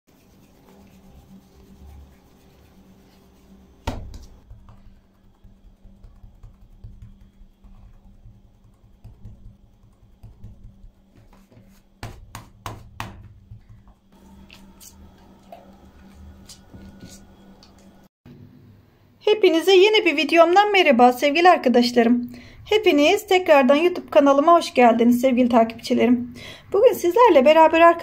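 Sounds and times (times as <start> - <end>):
faint steady hum: 0.2 - 27.8
hands patting bread dough: 1.6 - 18.0.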